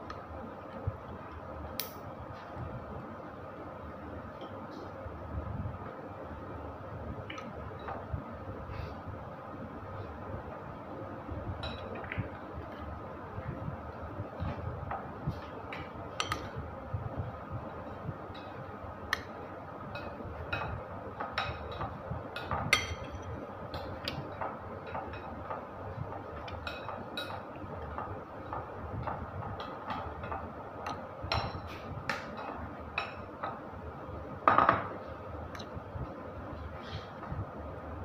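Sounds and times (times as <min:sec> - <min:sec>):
metal spoon clinking against bowl: 0:22.4 - 0:23.3.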